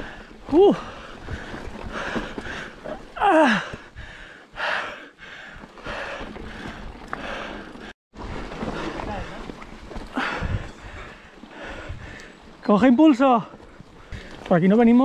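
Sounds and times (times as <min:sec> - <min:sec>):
person breathing hard: 0:00.0 - 0:08.0, 0:10.1 - 0:12.4
person grunting: 0:03.2 - 0:03.7.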